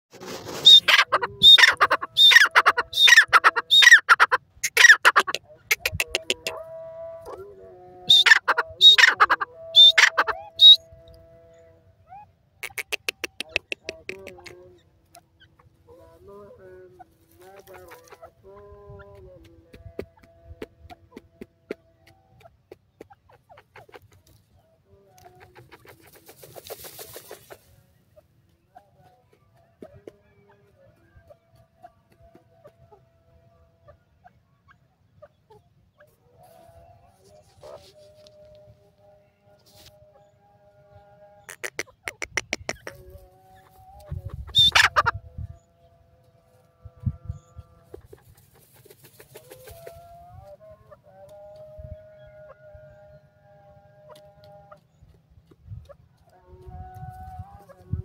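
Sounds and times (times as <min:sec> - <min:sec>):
bird calling harshly: 0:00.4 - 0:06.6, 0:08.1 - 0:10.8, 0:12.1 - 0:14.5, 0:41.5 - 0:43.0, 0:44.3 - 0:45.1
francolin clucking calls: 0:00.5 - 0:07.4, 0:08.0 - 0:10.9, 0:11.5 - 0:16.2, 0:16.9 - 0:19.2, 0:20.2 - 0:28.9, 0:41.4 - 0:45.3.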